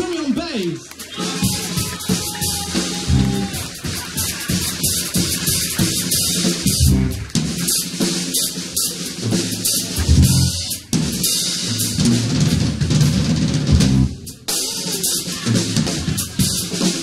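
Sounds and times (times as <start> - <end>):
live band playing: 0.9 - 17.0
drum kit with cymbals: 1.0 - 17.0
electric bass: 3.0 - 3.5, 6.7 - 7.4, 9.2 - 10.7, 11.7 - 14.3.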